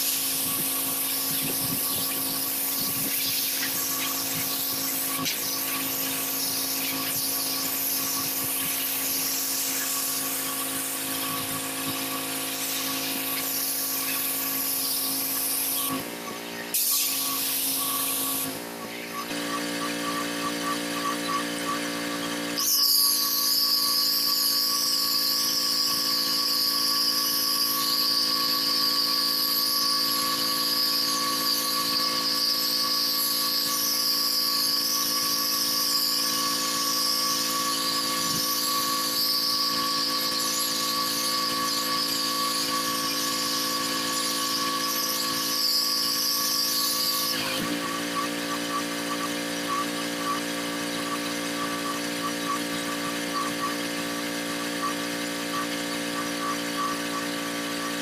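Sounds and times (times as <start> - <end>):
high-pitched water spray whine: 0.0 - 58.0
pressure washer engine running: 0.0 - 58.0.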